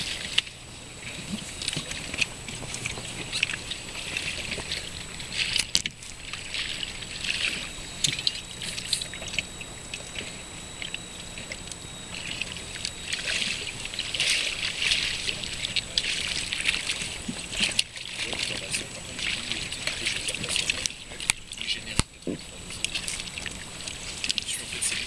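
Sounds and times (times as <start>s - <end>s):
water lapping against boat hull: 0.0s - 25.0s.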